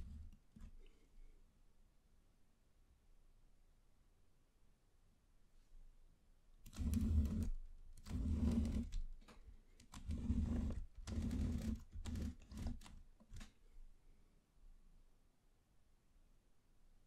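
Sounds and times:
wooden model scraping on tabletop: 0:00.0 - 0:00.8, 0:06.7 - 0:09.0, 0:09.9 - 0:13.4.

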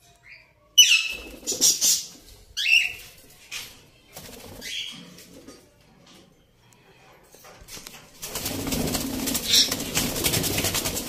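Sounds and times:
parakeets screeching: 0:00.8 - 0:03.0, 0:09.4 - 0:10.0
wings flapping: 0:08.2 - 0:11.0.

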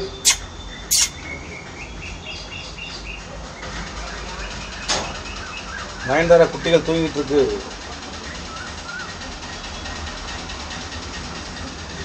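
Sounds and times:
sharp click: 0:00.0 - 0:01.1
small bird chirping: 0:00.0 - 0:01.1.

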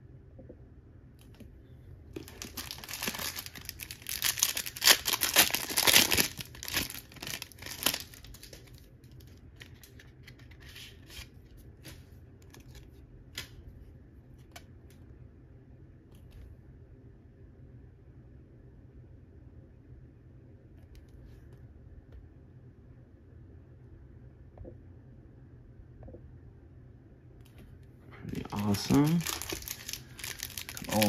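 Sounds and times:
wrapper tearing and crinkling: 0:02.2 - 0:11.2, 0:28.3 - 0:31.0.

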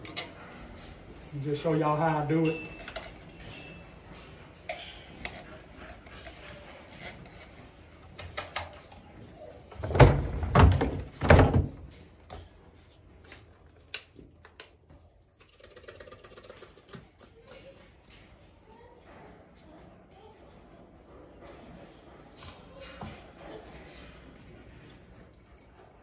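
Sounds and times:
cans clicking and clinking: 0:02.4 - 0:03.7, 0:15.4 - 0:17.2.

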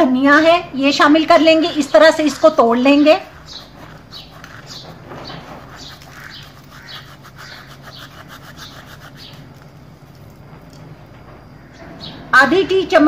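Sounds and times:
dry rasping of seeds rubbed: 0:01.6 - 0:10.4.

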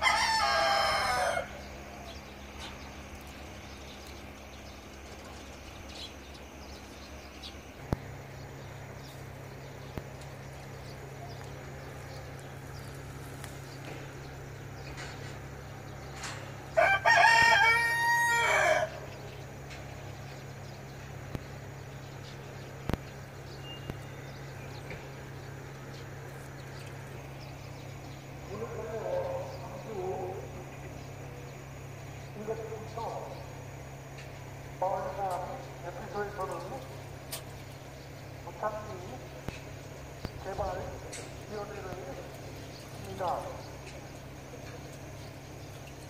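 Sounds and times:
rooster crowing: 0:00.0 - 0:02.3, 0:16.5 - 0:19.3
steady low hum: 0:00.0 - 0:46.0.

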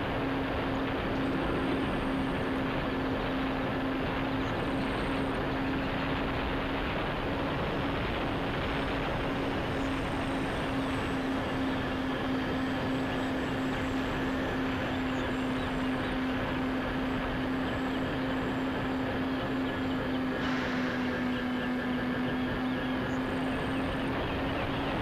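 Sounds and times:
electric motors and propellers droning: 0:00.0 - 0:25.0
rushing air: 0:20.4 - 0:21.5.

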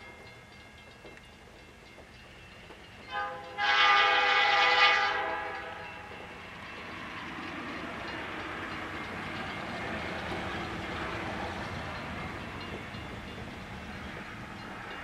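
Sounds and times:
train rumbling: 0:00.0 - 0:15.0
locomotive air horn: 0:03.1 - 0:05.8.

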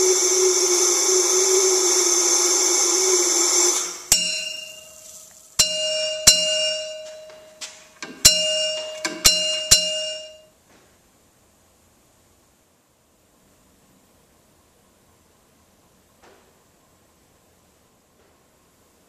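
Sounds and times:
bell ringing with clear tone: 0:04.1 - 0:10.5.

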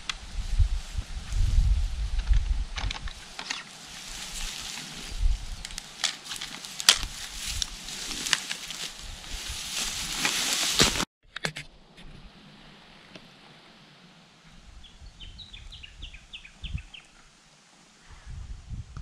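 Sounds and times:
dry grass and clothing rustling: 0:00.0 - 0:11.1.

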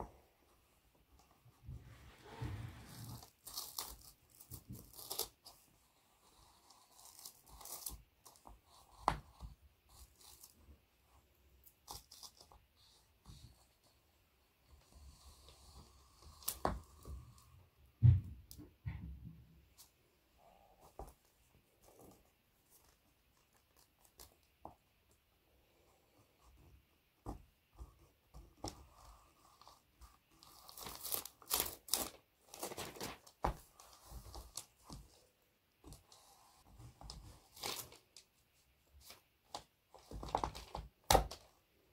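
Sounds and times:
paper crinkling: 0:02.8 - 0:05.6, 0:28.6 - 0:35.2, 0:35.8 - 0:38.3.

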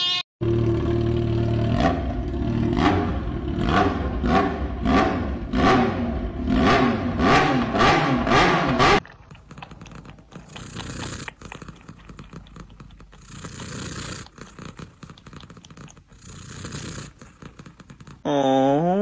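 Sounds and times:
cat purring: 0:09.3 - 0:18.2.

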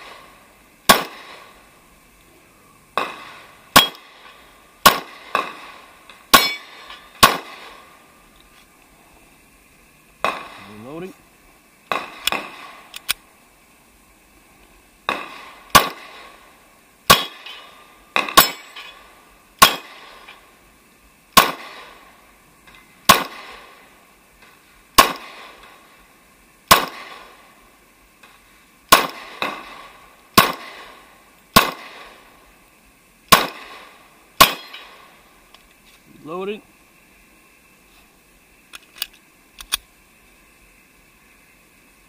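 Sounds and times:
pistol shots: 0:00.9 - 0:01.5, 0:03.0 - 0:04.2, 0:04.8 - 0:07.8, 0:15.1 - 0:16.4, 0:17.1 - 0:18.8, 0:19.6 - 0:20.2, 0:21.4 - 0:22.0, 0:23.1 - 0:23.7, 0:25.0 - 0:25.6, 0:26.7 - 0:27.3, 0:28.9 - 0:31.0, 0:31.6 - 0:32.2, 0:33.3 - 0:35.1.

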